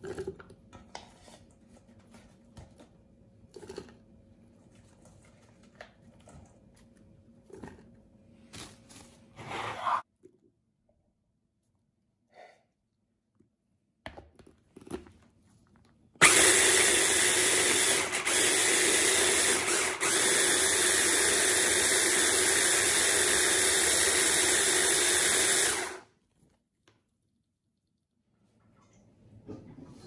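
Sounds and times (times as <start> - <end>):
food chopper motor running: 16.2 - 26.0.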